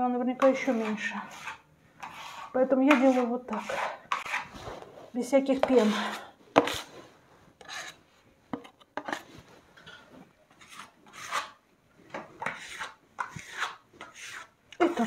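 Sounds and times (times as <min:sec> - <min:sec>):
spatula scraping wet plaster: 0:00.4 - 0:04.8, 0:05.4 - 0:07.0, 0:07.6 - 0:08.0, 0:09.0 - 0:11.6, 0:12.4 - 0:15.0.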